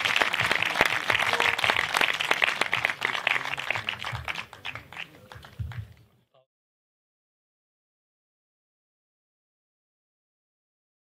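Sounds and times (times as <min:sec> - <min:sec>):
audience applauding: 0:00.0 - 0:06.0.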